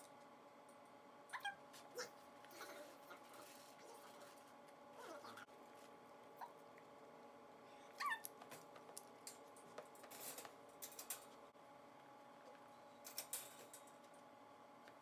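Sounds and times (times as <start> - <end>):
puppy whimpering: 8.0 - 8.3.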